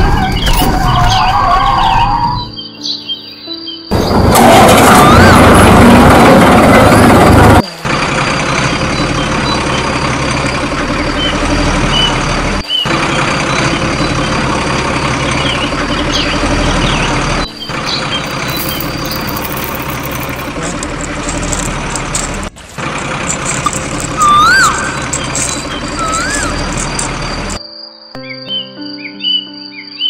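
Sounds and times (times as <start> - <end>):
truck engine running: 3.9 - 27.6.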